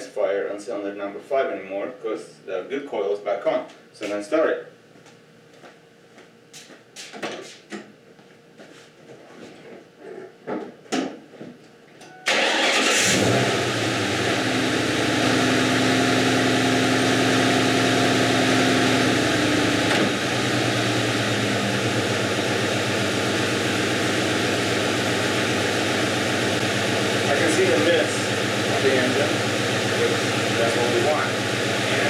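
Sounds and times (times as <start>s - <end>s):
car engine starting: 12.3s - 32.0s
misfiring car engine idling: 12.3s - 32.0s.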